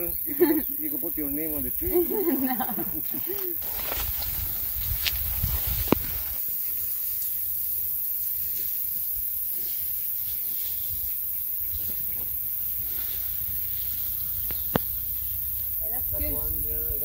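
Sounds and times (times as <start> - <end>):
high-pitched hiss: 0.0 - 17.0
faint rustles: 1.8 - 7.4
wind rumble on microphone: 3.8 - 6.4, 15.8 - 17.0.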